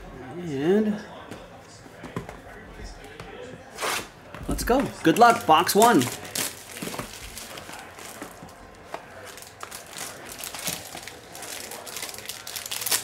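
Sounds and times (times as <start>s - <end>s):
plastic wrap crinkling: 5.0s - 13.0s.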